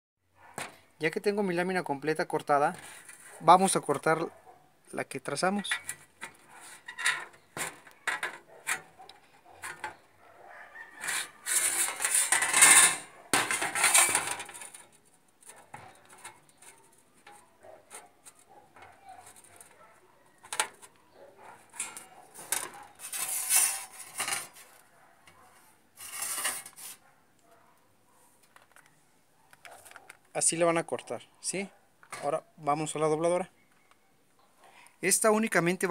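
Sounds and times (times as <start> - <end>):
metal sheet rattling: 11.0 - 18.1, 21.6 - 24.6.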